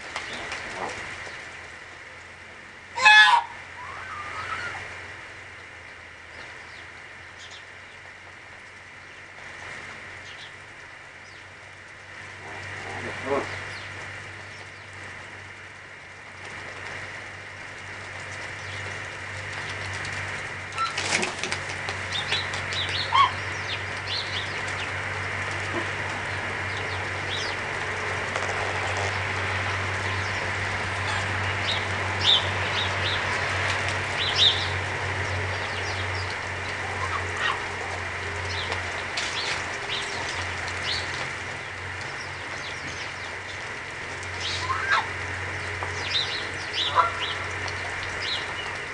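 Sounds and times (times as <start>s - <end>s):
low hum: 0.0s - 48.9s.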